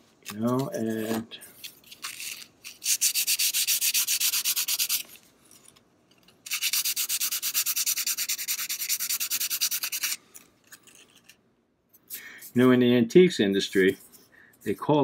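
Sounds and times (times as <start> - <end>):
sandpaper rubbing on wood: 2.2 - 5.0, 6.5 - 10.2.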